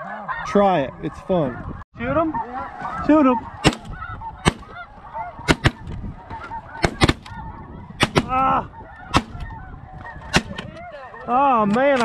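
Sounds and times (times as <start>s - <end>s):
geese honking: 0.0s - 12.0s
shotguns firing: 3.6s - 4.8s, 5.5s - 5.9s, 6.8s - 7.3s, 8.0s - 8.3s, 9.1s - 9.4s.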